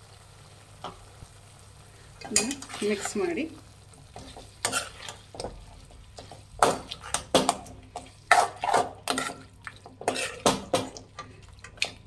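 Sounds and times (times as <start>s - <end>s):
metal spatula scraping metal pan: 4.2s - 5.3s, 8.0s - 10.9s.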